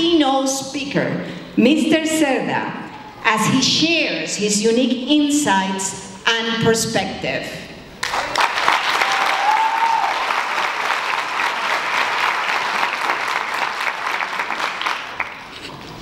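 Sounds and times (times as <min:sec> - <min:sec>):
audience applauding: 0:08.0 - 0:15.7.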